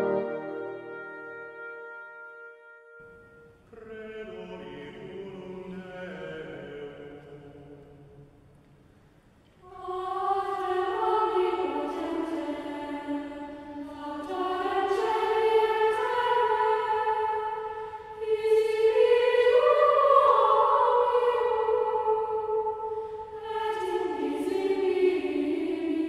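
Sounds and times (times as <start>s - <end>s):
choir singing sustained chords: 0.0s - 8.4s, 9.6s - 26.0s.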